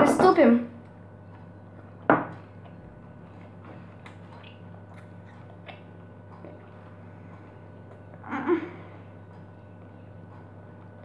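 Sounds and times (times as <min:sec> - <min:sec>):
steady low hum: 0:00.0 - 0:11.0
person chewing with mouth clicks: 0:02.6 - 0:06.8.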